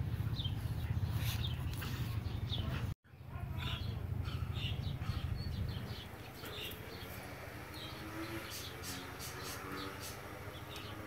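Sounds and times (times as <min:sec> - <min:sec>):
birds chirping: 0:00.0 - 0:11.0.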